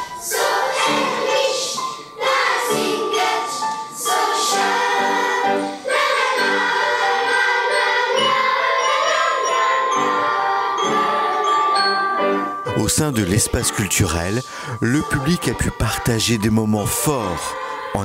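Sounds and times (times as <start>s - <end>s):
children's choir singing: 0.0s - 18.0s
xylophones playing: 0.4s - 17.9s.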